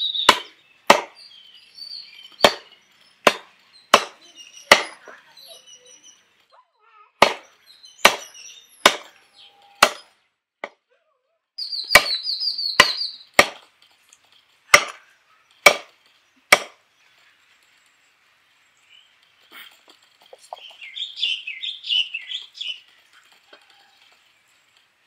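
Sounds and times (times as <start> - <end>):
cleaver chopping on wooden block: 0.3 - 1.2, 2.4 - 5.0, 7.2 - 9.1, 9.8 - 10.8, 11.9 - 12.2, 12.8 - 13.6, 14.7 - 15.0, 15.6 - 15.9, 16.5 - 16.8.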